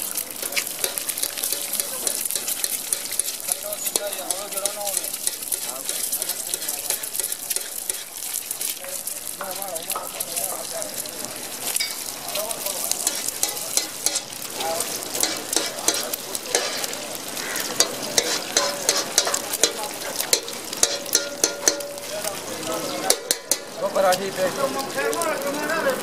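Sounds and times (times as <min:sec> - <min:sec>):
egg sizzling in hot oil: 0:00.0 - 0:26.0
oil popping and crackling: 0:00.0 - 0:26.0.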